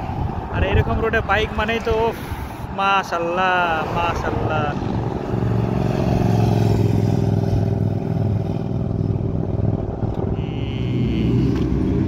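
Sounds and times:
motorcycle engine passing: 0:03.8 - 0:12.0
higher motorcycle engine note: 0:04.2 - 0:12.0.

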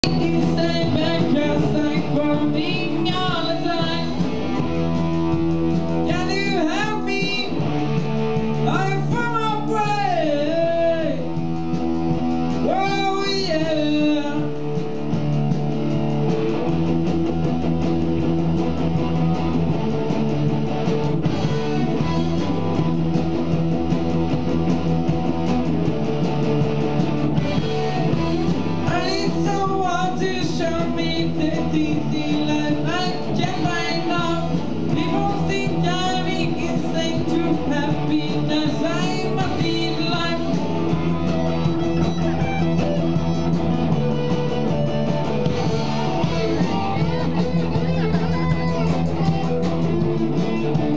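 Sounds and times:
person singing into a microphone: 0:00.0 - 0:04.6, 0:06.0 - 0:11.4, 0:12.6 - 0:14.8, 0:28.8 - 0:42.4
live rock band playing: 0:00.0 - 0:50.9.

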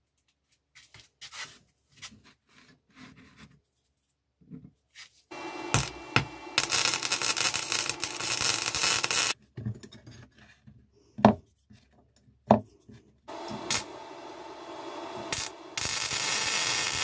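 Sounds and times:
welder arc crackling: 0:05.3 - 0:09.4, 0:13.3 - 0:17.0.

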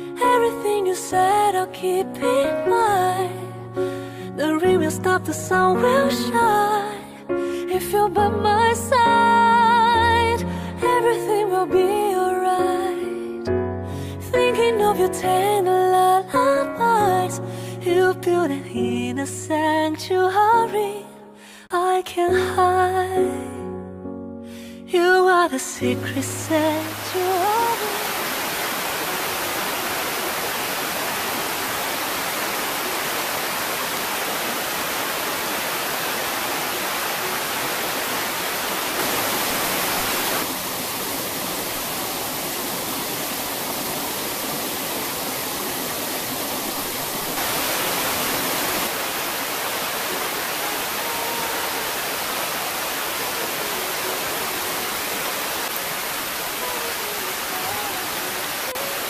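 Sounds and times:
heavy rain pouring: 0:26.2 - 0:59.0
stream rushing: 0:26.3 - 0:59.0.

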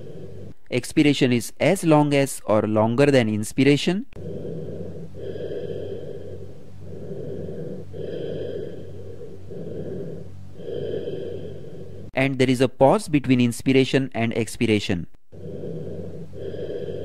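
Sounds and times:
hollow breath sounds: 0:00.0 - 0:00.6, 0:04.2 - 0:12.2, 0:15.3 - 0:17.0.

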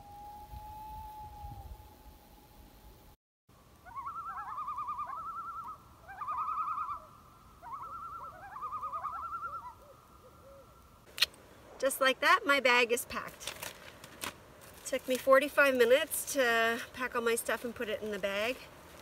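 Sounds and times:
loon tremolo call: 0:03.8 - 0:10.6
fainter lower wavering call: 0:03.8 - 0:10.8.

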